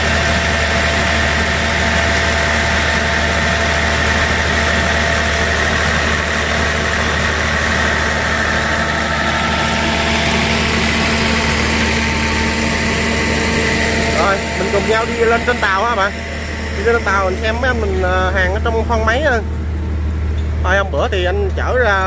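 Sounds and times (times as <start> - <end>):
diesel generator running: 0.0 - 22.0.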